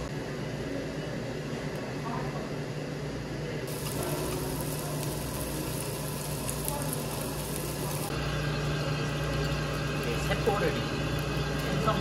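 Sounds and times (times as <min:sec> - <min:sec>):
steady hiss: 0:03.7 - 0:08.1.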